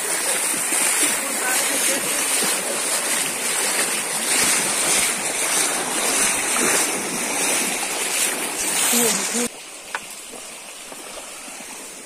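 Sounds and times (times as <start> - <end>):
feet splashing in water: 0.0 - 12.0
stream rushing: 0.0 - 12.0.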